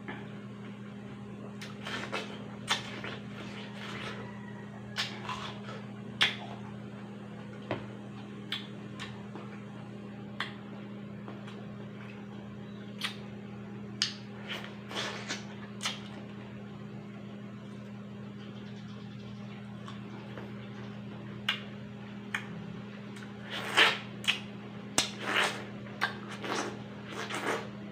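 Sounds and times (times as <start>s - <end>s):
steady low hum: 0.0s - 27.9s
watermelon crunching while chewed: 1.5s - 9.7s, 10.3s - 12.4s, 13.0s - 13.4s, 14.0s - 16.5s, 22.3s - 27.9s.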